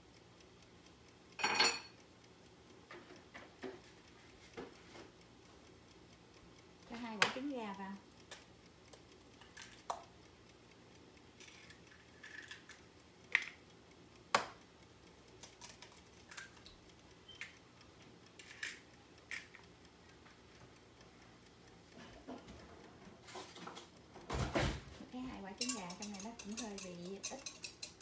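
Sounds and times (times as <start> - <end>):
eggs cracking taps: 8.3 - 10.1, 11.4 - 13.7, 14.3 - 14.6, 15.3 - 17.6, 18.4 - 20.4, 25.5 - 28.0.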